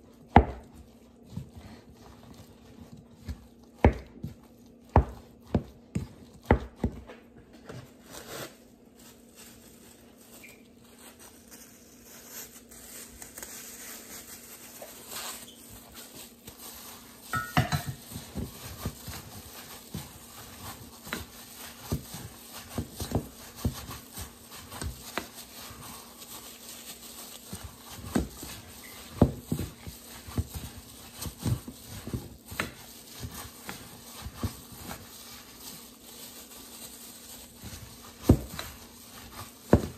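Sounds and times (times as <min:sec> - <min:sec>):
gloved hand squishing mixture: 0:00.0 - 0:39.9
wooden spoon knocking bowl: 0:17.3 - 0:18.0.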